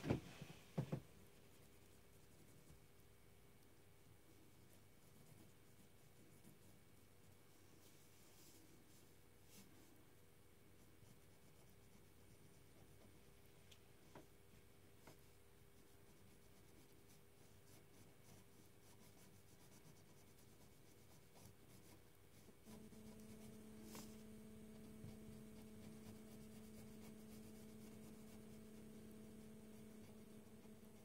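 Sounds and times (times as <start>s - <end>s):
pen scratching on paper: 15.8s - 31.0s
low hum: 22.6s - 31.0s.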